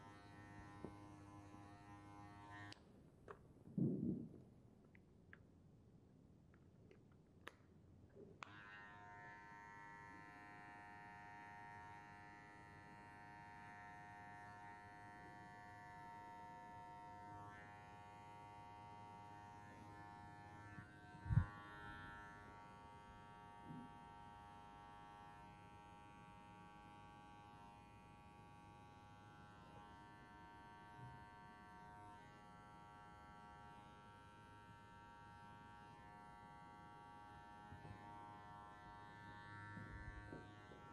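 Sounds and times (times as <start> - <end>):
electric hair clippers buzzing: 0.0 - 2.8, 8.4 - 27.9, 31.6 - 40.9.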